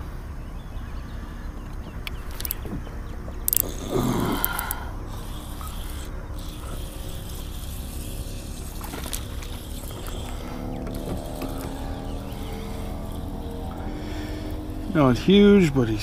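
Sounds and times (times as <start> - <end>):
high whine of steady tones: 0.0 - 16.0
electric motor humming: 2.1 - 16.0.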